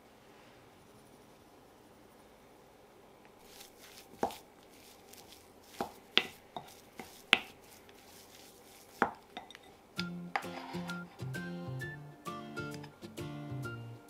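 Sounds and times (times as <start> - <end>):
wooden spoon knocking glass bowl: 5.7 - 7.6, 9.0 - 9.7.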